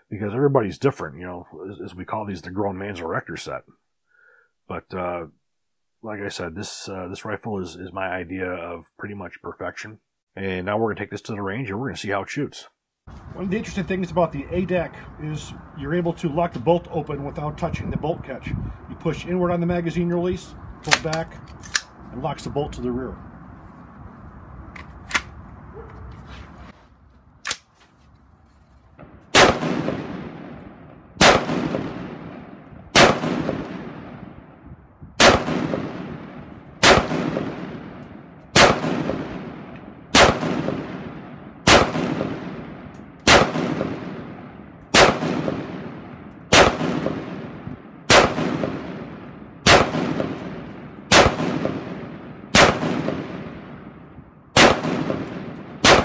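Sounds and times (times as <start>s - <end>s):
rifle handling clicks: 20.8s - 22.0s, 24.7s - 25.4s, 27.4s - 27.9s
rifle shots ringing: 29.0s - 34.4s, 35.2s - 56.0s.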